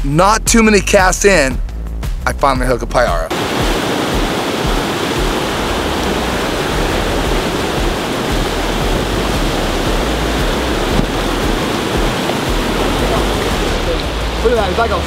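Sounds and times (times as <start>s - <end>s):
whitewater rapids rushing: 3.3s - 15.0s.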